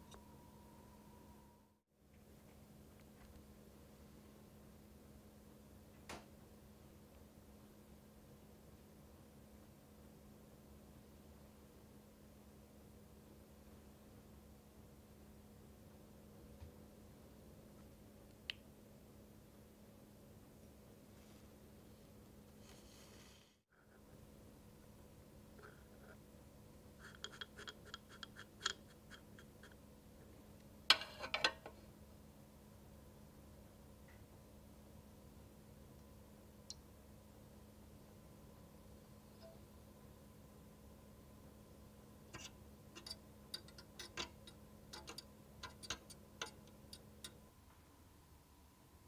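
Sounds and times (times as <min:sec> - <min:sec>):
small utensils clattering: 0:42.4 - 0:46.7
whisk ticking in metal saucepan: 0:42.4 - 0:47.4.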